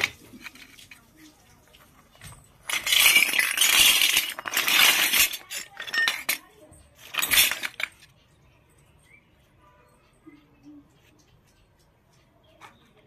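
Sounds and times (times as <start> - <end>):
toy pieces clinking and rustling: 0.0 - 8.4.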